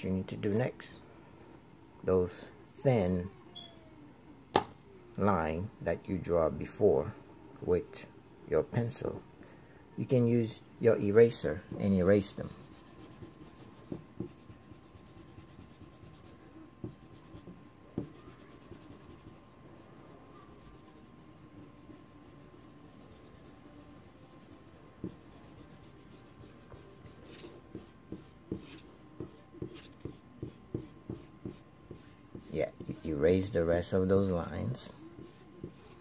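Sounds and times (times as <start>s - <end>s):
eraser rubbing on paper: 12.4s - 19.5s, 20.4s - 33.0s, 34.8s - 36.0s.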